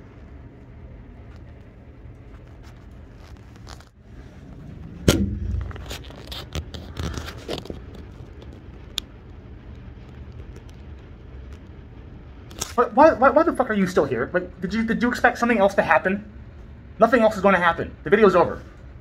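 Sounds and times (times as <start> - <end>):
low steady hum: 0.0 - 19.0
loud knock: 4.9 - 6.3
irregular clicks and scraping: 5.4 - 11.8.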